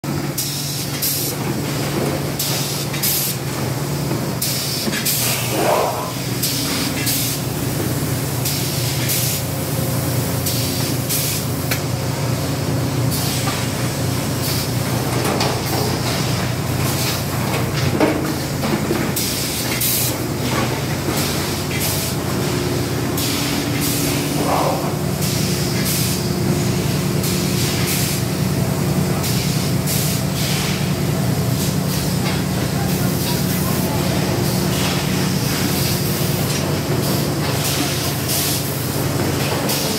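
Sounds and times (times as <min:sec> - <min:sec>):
compressed air hisses: 0:04.4 - 0:11.6, 0:21.2 - 0:28.3, 0:29.2 - 0:30.9.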